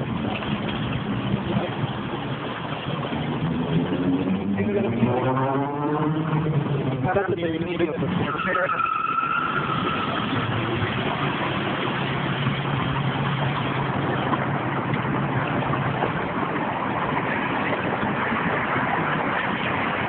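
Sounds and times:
vehicle engine low hum: 0.0 - 8.3, 9.8 - 20.0
passing cars: 0.0 - 20.0.

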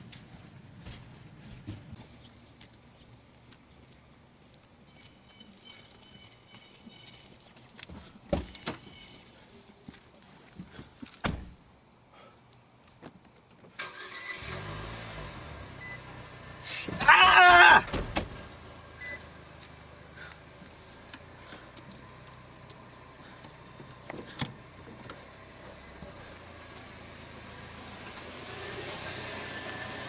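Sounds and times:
car engine starting and idling: 13.8 - 17.0.

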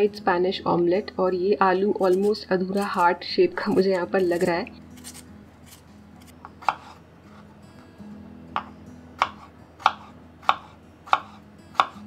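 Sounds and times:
soft background music: 0.0 - 12.0
knife chopping on wooden board: 4.3 - 7.0, 8.6 - 12.0.

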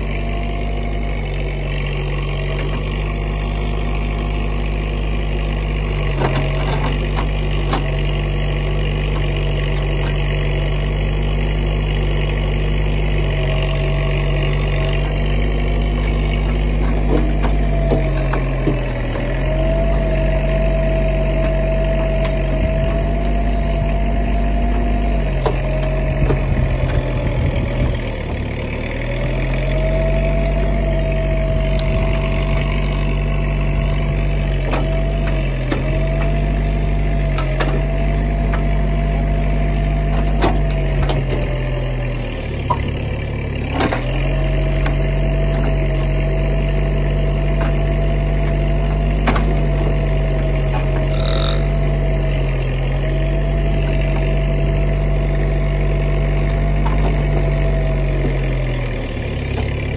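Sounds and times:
skid-steer engine running: 0.0 - 59.9
hydraulic whine: 13.7 - 32.8, 33.8 - 43.0, 49.0 - 52.7, 58.2 - 59.9.

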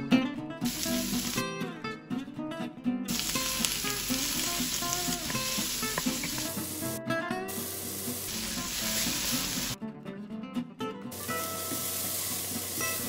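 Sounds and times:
onions sizzling in oil: 0.6 - 1.4, 3.1 - 9.8, 11.1 - 13.0
wooden spoon stirring: 4.3 - 6.8.

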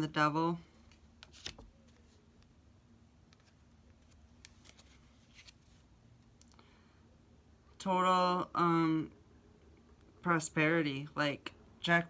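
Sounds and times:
faint steady hum: 0.0 - 12.0
cards being handled: 0.8 - 2.5, 3.2 - 6.5.

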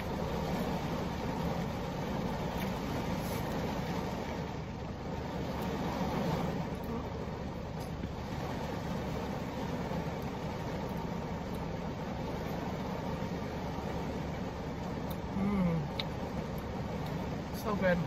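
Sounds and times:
heavy rain on car roof: 0.0 - 18.0
low voice hum: 15.3 - 16.0.

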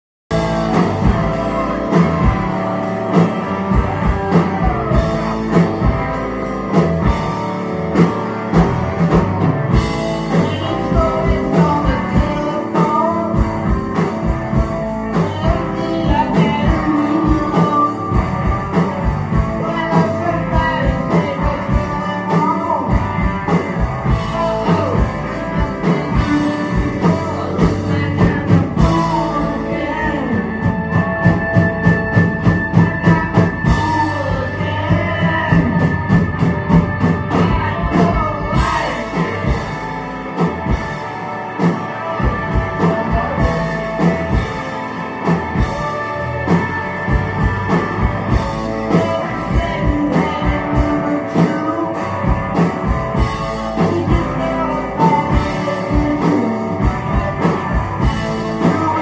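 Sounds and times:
bass guitar: 0.3 - 59.0
drum kit beat: 0.3 - 59.0
electric guitars: 0.3 - 59.0
person singing: 10.0 - 31.0, 32.2 - 47.0, 47.7 - 59.0.

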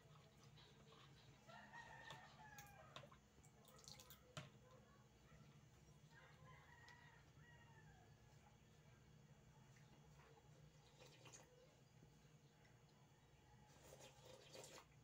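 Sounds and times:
rooster crowing faintly: 0.2 - 3.2, 4.2 - 8.8.

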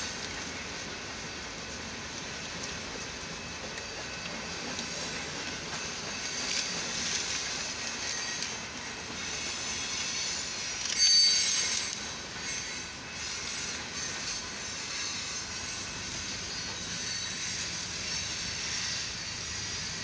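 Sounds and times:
train wheels on rails: 0.0 - 20.0
high wheel squeal: 5.7 - 20.0.

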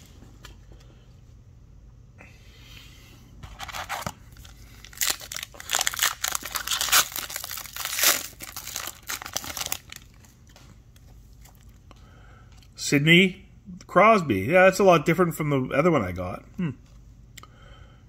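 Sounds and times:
foil wrapper tearing and crinkling: 3.6 - 10.2.

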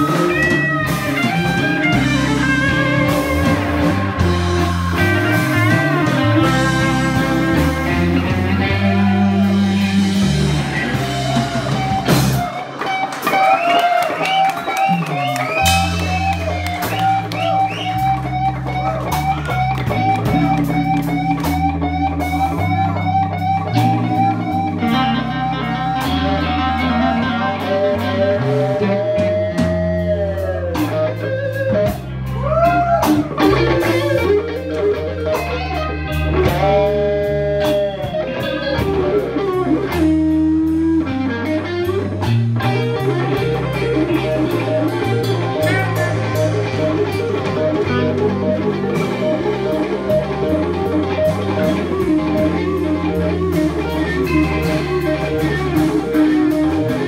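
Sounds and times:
walking bass line: 0.0 - 13.4, 14.2 - 57.0
drums: 0.0 - 57.0
electric guitar bent notes: 0.0 - 57.0.

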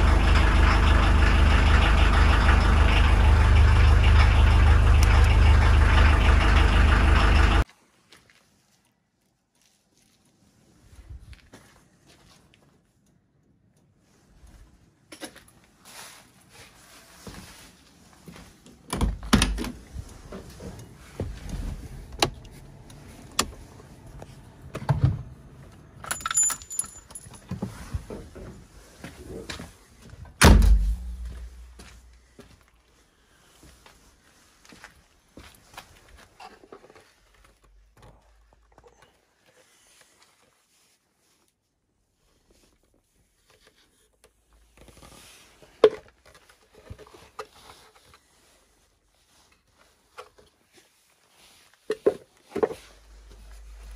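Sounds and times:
keys jangling: 26.0 - 27.5.

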